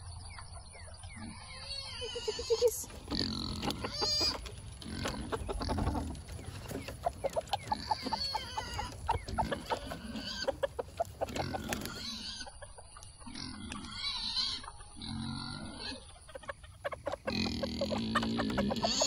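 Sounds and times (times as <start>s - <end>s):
chickens clucking: 0.0s - 19.0s
chicken squawks: 1.2s - 6.0s, 6.8s - 14.8s, 15.6s - 19.0s.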